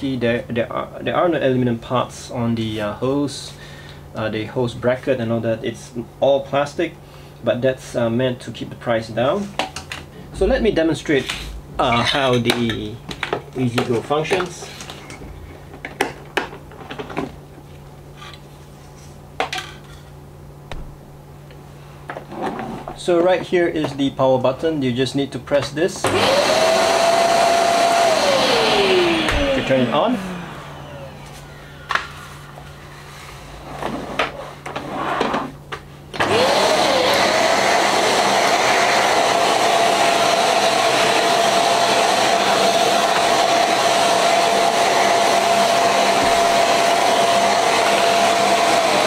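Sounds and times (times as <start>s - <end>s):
vacuum cleaner motor whine: 26.0s - 34.3s, 36.1s - 49.0s
vacuum air rushing: 26.3s - 33.7s.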